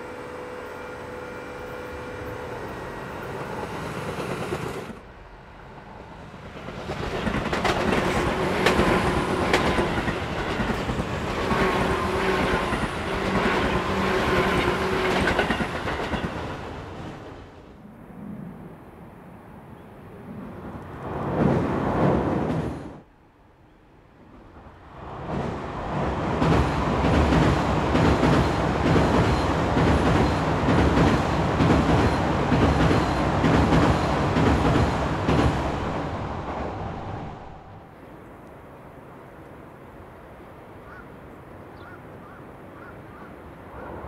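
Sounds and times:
electric train running by: 0.0s - 17.7s, 24.2s - 38.3s
wheels clacking over rail joints: 6.5s - 17.2s.

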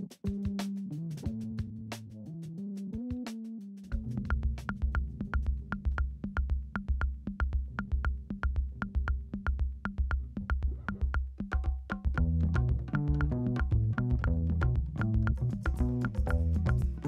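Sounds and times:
electronic music with steady beat: 14.9s - 17.0s.

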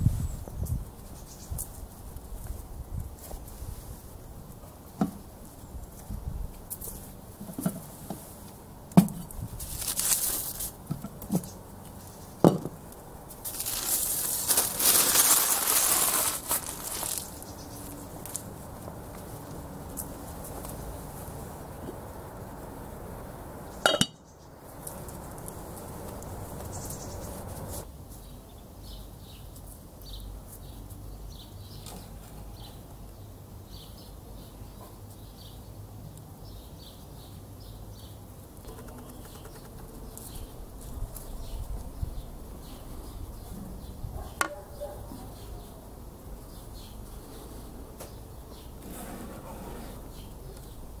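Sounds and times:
small birds chirping: 0.0s - 4.6s, 11.2s - 12.4s, 13.0s - 48.8s, 49.9s - 51.0s
metal pot lid clanking: 23.8s - 24.2s.

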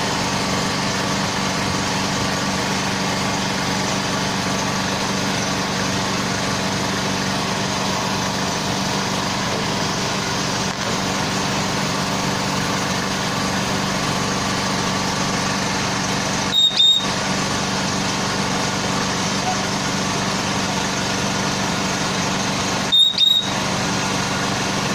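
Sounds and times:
diesel truck engine humming: 0.0s - 24.9s
short high-pitched burst: 16.5s - 17.2s, 22.9s - 23.6s.

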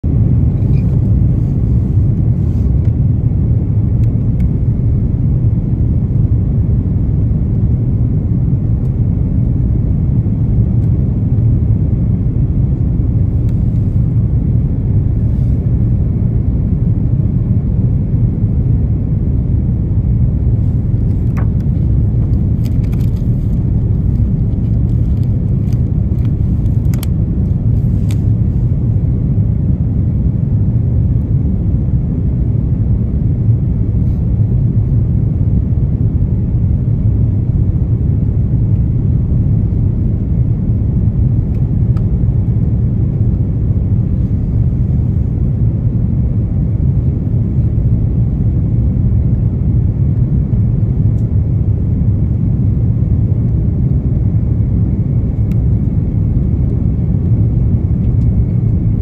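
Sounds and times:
airliner cabin engine rumble: 0.0s - 59.0s.

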